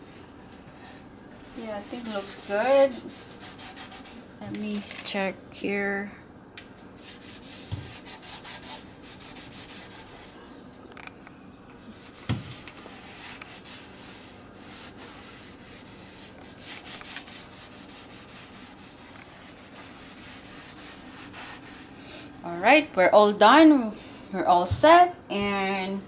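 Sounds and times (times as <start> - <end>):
cloth scrubbing wooden board: 1.5 - 4.2, 7.0 - 10.3, 11.9 - 21.9.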